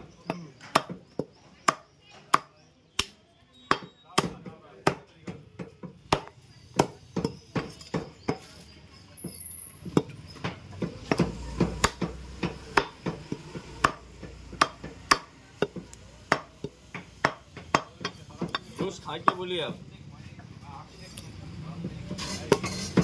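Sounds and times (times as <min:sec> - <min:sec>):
cleaver chopping meat: 0:00.2 - 0:08.5, 0:09.9 - 0:19.4.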